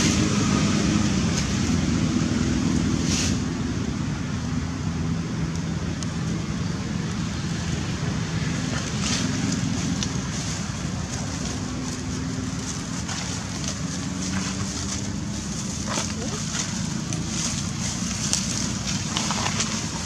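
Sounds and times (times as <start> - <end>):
outdoor background rumble: 0.0 - 20.0
hiss: 3.0 - 3.5.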